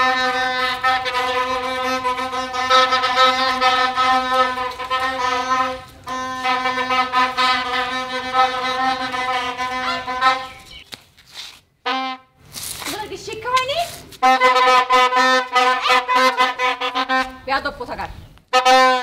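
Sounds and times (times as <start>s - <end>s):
plastic stadium horn blasts: 0.0s - 10.7s, 11.8s - 12.4s, 14.2s - 17.6s, 18.5s - 19.0s.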